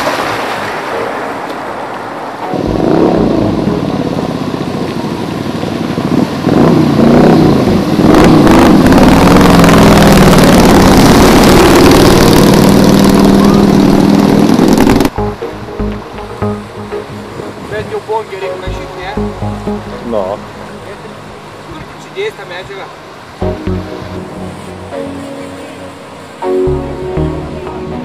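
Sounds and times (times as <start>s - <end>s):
water rushing and splashing: 0.0s - 28.0s
motorcycle engine revving: 2.6s - 15.2s.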